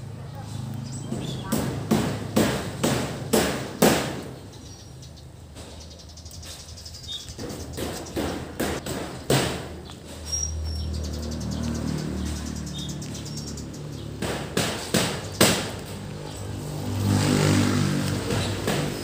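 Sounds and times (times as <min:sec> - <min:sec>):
hammer knocks: 0:07.4 - 0:09.8, 0:14.2 - 0:15.8.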